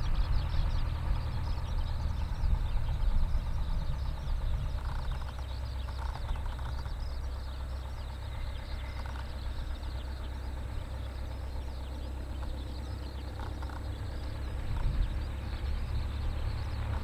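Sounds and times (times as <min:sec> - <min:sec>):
propeller aircraft engine droning: 0:00.0 - 0:17.0.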